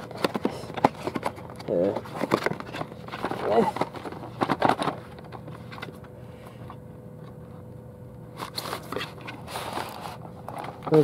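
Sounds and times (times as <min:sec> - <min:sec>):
packaging rustling and scraping: 0:00.0 - 0:06.0, 0:08.3 - 0:11.0.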